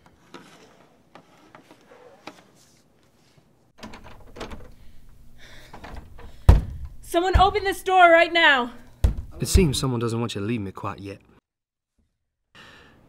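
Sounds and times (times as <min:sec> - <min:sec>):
locked wooden door rattling: 0:03.8 - 0:04.8, 0:08.9 - 0:09.7.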